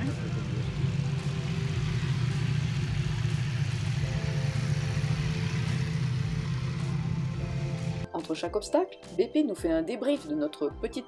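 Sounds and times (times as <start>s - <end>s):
motorcycle engine at low revs: 0.0s - 8.1s.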